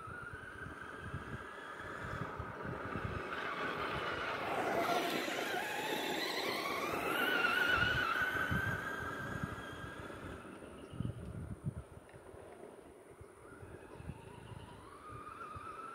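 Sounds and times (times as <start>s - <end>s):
electric motor whining: 0.0s - 11.3s.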